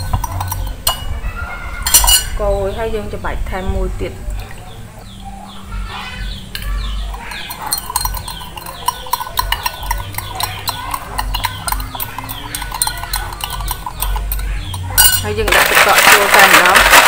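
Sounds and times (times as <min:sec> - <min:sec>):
spoon clinking against glass: 0:00.0 - 0:01.2, 0:01.8 - 0:02.4, 0:06.5 - 0:17.0.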